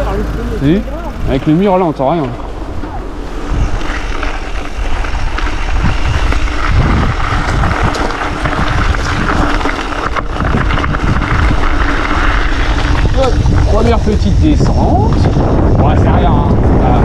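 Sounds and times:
bike clicks and rattles: 0:00.0 - 0:17.0
wind buffeting microphone: 0:00.0 - 0:17.0.

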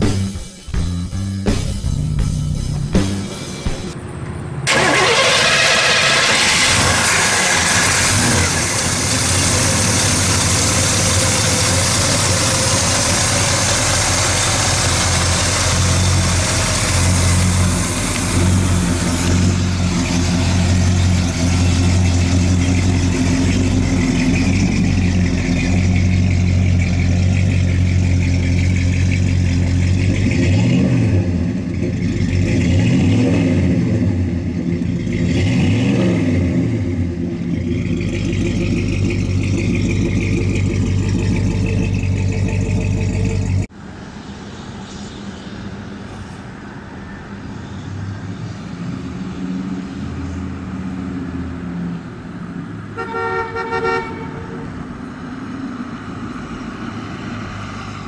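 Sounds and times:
engine revving: 0:04.6 - 0:43.7
car engine idling: 0:04.7 - 0:30.6, 0:36.9 - 0:43.7.

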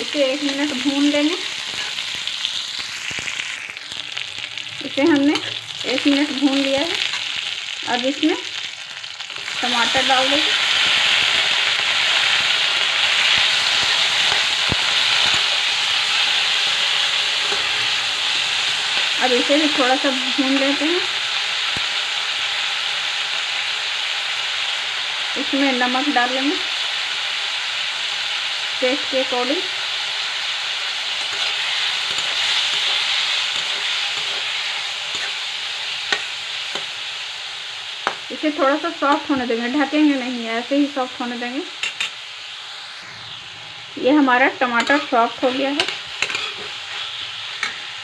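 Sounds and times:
vegetables sizzling in hot oil: 0:00.0 - 0:48.0
spatula scraping a pan: 0:01.6 - 0:02.1, 0:17.3 - 0:18.5, 0:31.2 - 0:36.9, 0:44.7 - 0:48.0
metal spatula clinking on pan: 0:45.8 - 0:46.7.

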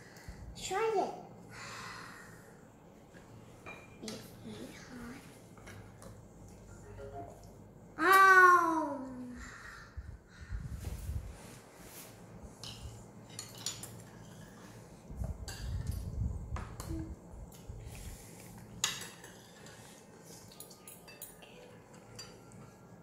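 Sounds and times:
cutlery clinking on plates: 0:12.6 - 0:14.5, 0:18.8 - 0:19.9, 0:20.5 - 0:22.6.

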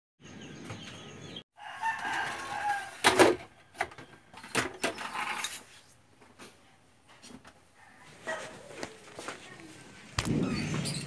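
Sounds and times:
rooster crowing: 0:01.6 - 0:04.4.

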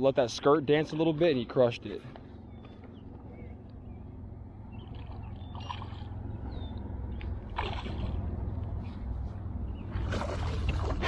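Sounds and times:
steady low rumble: 0:00.0 - 0:11.0
fish splashing at water surface: 0:07.5 - 0:08.3.

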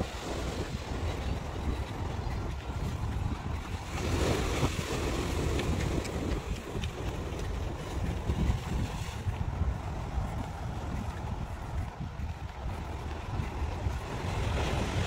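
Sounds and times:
wind buffeting microphone: 0:00.0 - 0:15.0
sea washing over rocks: 0:02.9 - 0:07.2.

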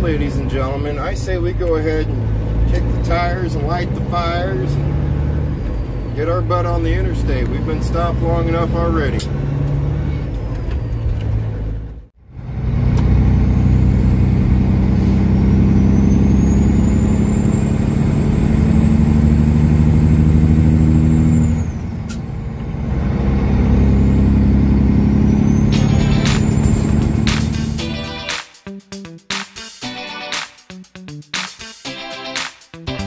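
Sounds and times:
truck diesel engine driving: 0:00.0 - 0:28.3.

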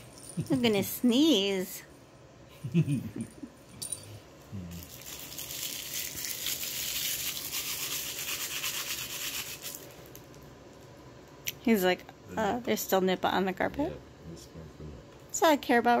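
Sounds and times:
scratchy rubbing on carpet: 0:07.5 - 0:09.8.

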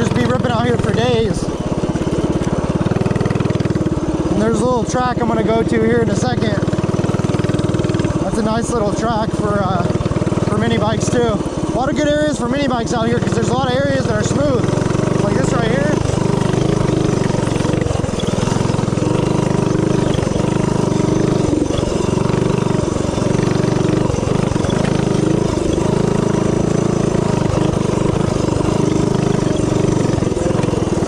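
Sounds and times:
mini bike engine running: 0:00.0 - 0:31.0.

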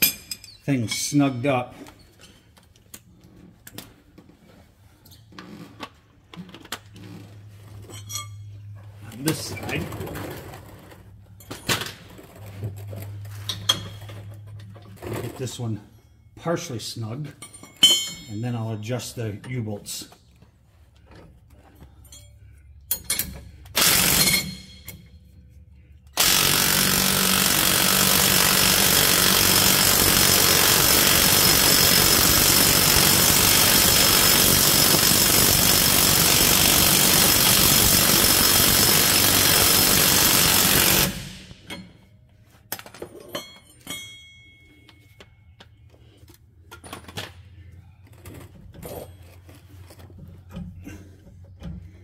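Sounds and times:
hand tools clinking: 0:00.0 - 0:01.6, 0:17.2 - 0:18.8, 0:42.7 - 0:45.7
impact wrench hammering: 0:22.9 - 0:25.1, 0:26.2 - 0:42.1.

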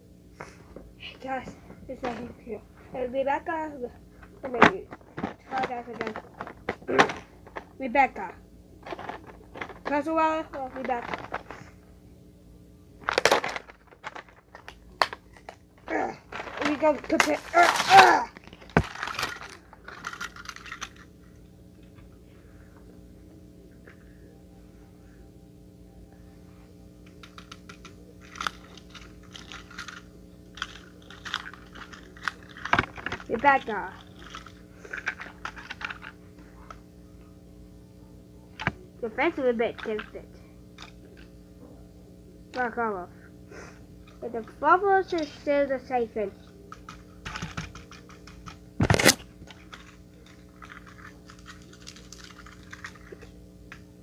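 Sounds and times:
faint steady hum: 0:00.0 - 0:54.0
clicks and rustles of handling: 0:04.2 - 0:07.7, 0:08.8 - 0:11.7, 0:16.3 - 0:21.1, 0:27.0 - 0:36.8, 0:46.5 - 0:53.8.

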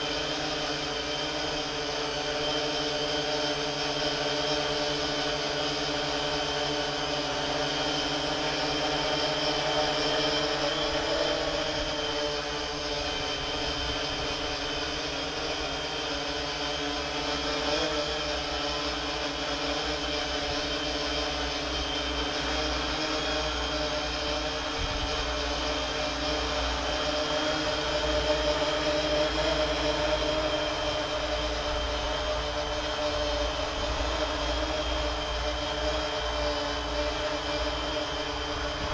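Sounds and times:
drone propellers buzzing hum: 0:00.0 - 0:38.9.

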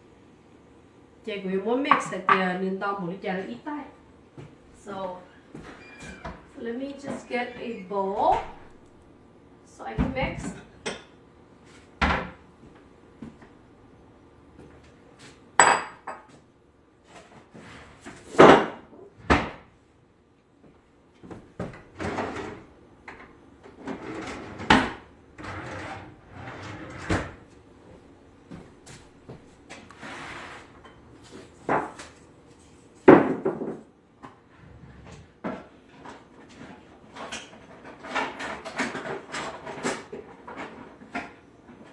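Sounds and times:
rummaging in kitchen cabinet: 0:34.4 - 0:41.9.

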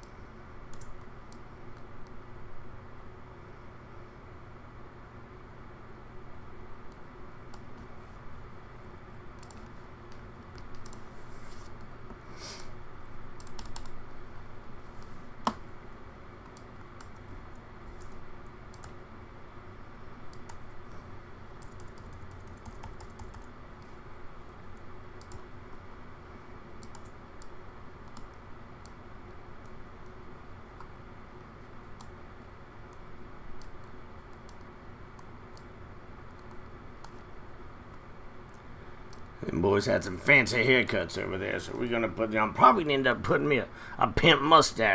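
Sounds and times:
steady low hum: 0:00.0 - 0:44.9
keyboard and mouse clicks: 0:00.7 - 0:02.2, 0:09.4 - 0:11.1, 0:13.4 - 0:14.0, 0:16.4 - 0:19.0, 0:21.6 - 0:23.5, 0:24.7 - 0:25.4, 0:26.8 - 0:29.0.

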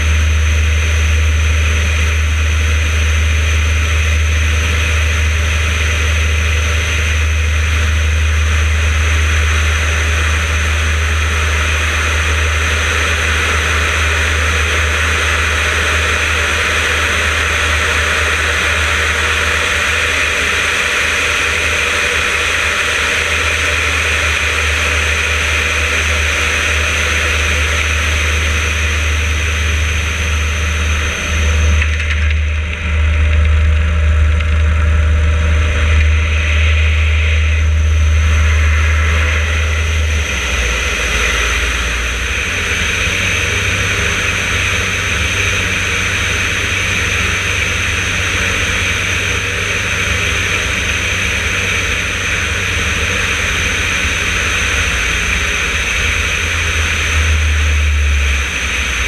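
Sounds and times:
radial engine and propeller: 0:00.0 - 0:59.0.

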